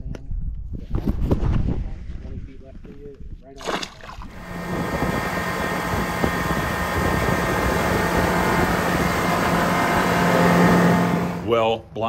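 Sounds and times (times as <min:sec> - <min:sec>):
outboard motor drone: 0:04.0 - 0:11.7.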